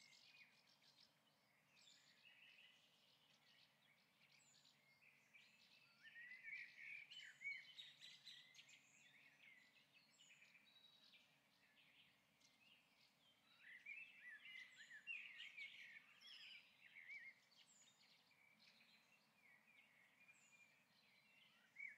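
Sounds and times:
birds chirping and twittering: 0.0s - 21.9s.

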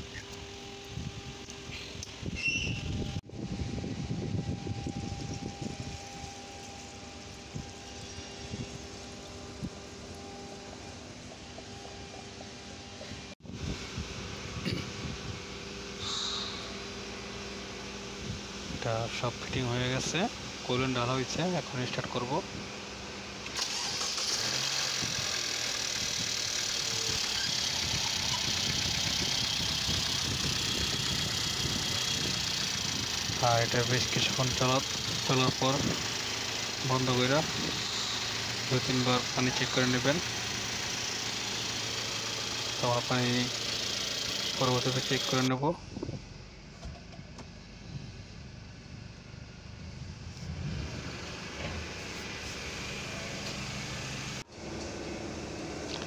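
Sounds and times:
car engine idling: 4.8s - 56.0s.

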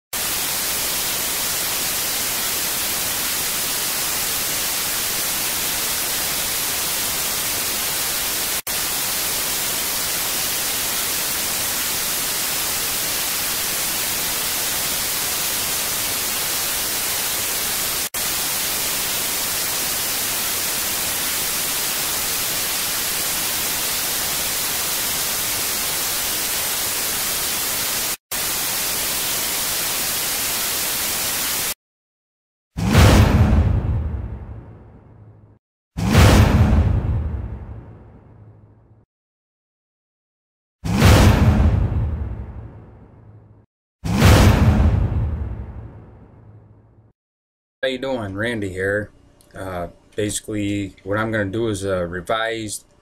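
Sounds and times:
tv static hiss: 0.2s - 31.8s, 47.9s - 52.8s.

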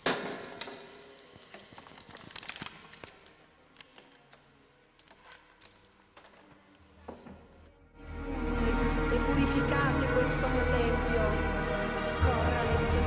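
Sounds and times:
leaves ticking on tabletop: 1.4s - 6.6s.

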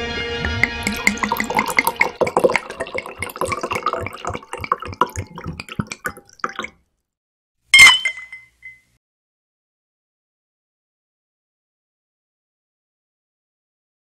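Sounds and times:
drink pouring and fizzing: 0.4s - 6.8s.

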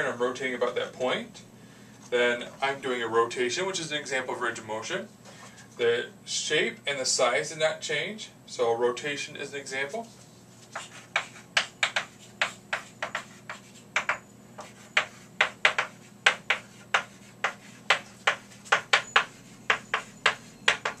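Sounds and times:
chalk tapping and scraping on blackboard: 10.6s - 21.0s.

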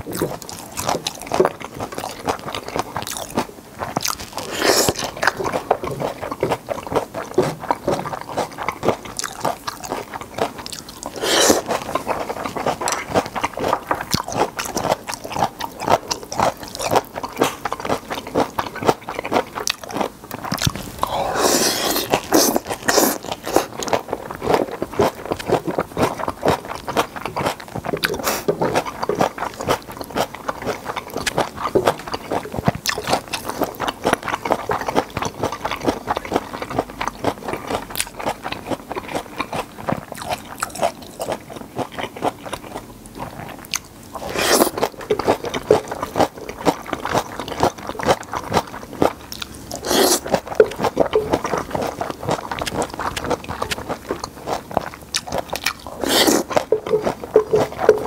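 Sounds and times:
chewing noodles: 0.0s - 58.0s
slurping noodles: 4.3s - 9.0s, 11.0s - 13.8s, 20.5s - 24.6s, 27.4s - 29.4s, 44.2s - 46.5s, 49.5s - 53.8s, 55.3s - 58.0s.

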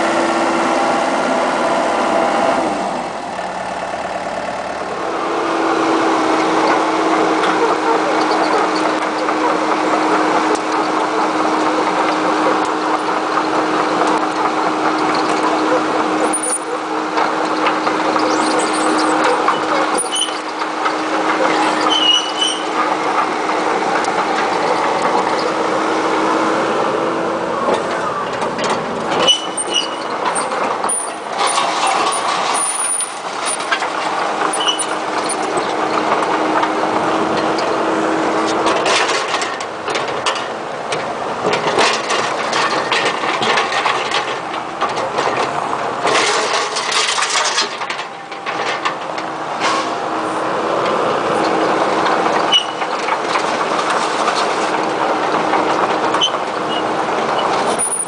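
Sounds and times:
excavator diesel engine running: 0.0s - 58.0s
high squeaks and clicks: 15.0s - 23.3s, 29.1s - 35.8s, 52.3s - 53.1s, 56.1s - 58.0s.

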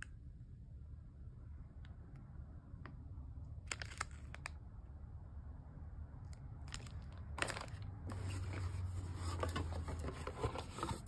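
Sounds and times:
plastic wrapper crinkling: 3.6s - 4.6s, 6.6s - 8.8s
cardboard box being moved: 7.4s - 11.0s.

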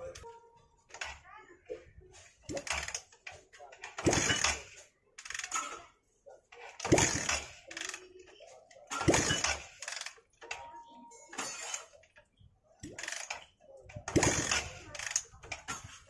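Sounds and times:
motorcycle engine kick cranking: 2.5s - 5.6s, 6.8s - 8.1s, 9.0s - 10.6s, 14.0s - 16.0s.

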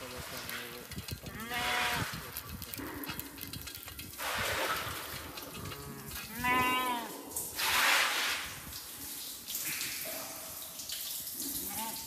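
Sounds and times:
sheep bleating: 1.3s - 2.2s, 6.0s - 7.2s.

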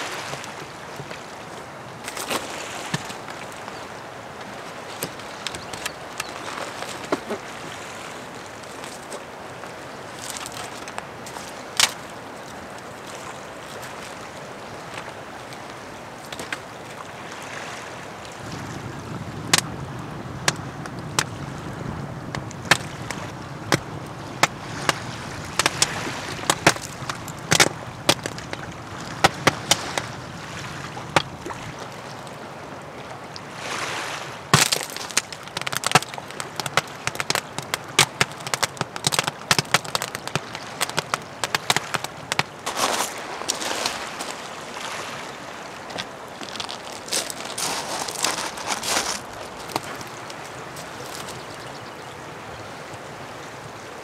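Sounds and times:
fire rushing and crackling: 18.4s - 30.2s, 34.6s - 42.5s
clay tiles cracking and popping: 34.6s - 42.5s.

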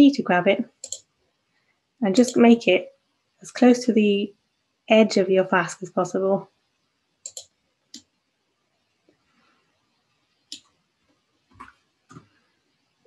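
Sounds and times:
mouse and keyboard clicks: 0.8s - 1.0s, 7.2s - 8.1s.

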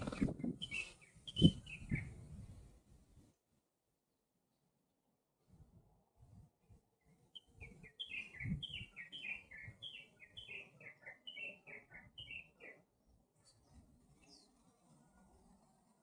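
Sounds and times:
small bird chirping: 0.0s - 2.2s, 7.4s - 12.8s.

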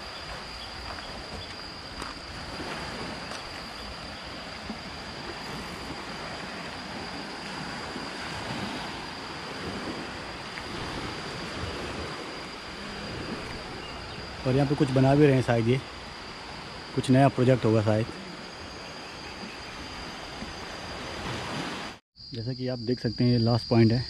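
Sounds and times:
wind buffeting microphone: 0.0s - 17.6s
steady high whine: 0.0s - 21.1s
small waves washing on shore: 0.0s - 22.0s.

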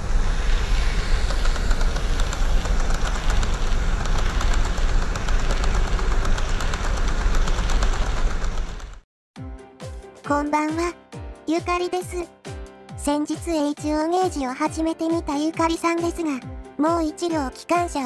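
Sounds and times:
model train running on track: 0.0s - 9.0s.

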